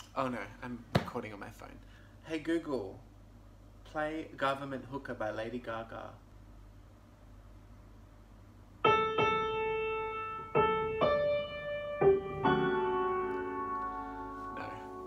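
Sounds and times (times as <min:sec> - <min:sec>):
slow solo piano music: 0:08.8 - 0:15.0.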